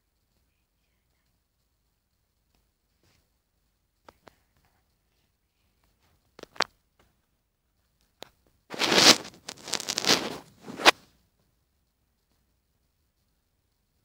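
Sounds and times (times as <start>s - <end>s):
plastic bags crinkling: 8.7s - 10.5s.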